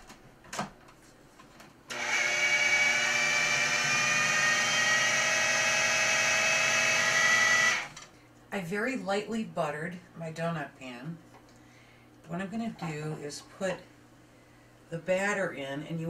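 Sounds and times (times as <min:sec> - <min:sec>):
food processor motor running: 0:01.9 - 0:08.0.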